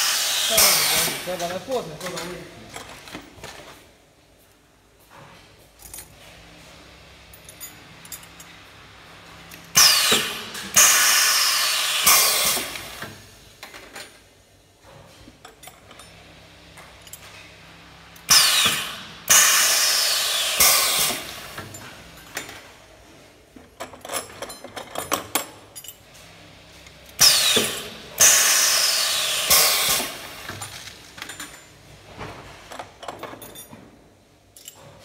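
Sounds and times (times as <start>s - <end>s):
rivet fixture noisy bursts: 9.7s - 13.1s, 18.2s - 21.6s, 27.2s - 30.6s.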